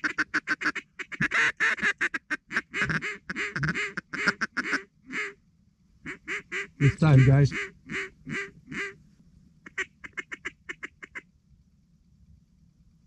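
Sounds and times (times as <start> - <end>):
duck call quacking: 0.0 - 5.4, 6.1 - 9.0, 9.6 - 11.2.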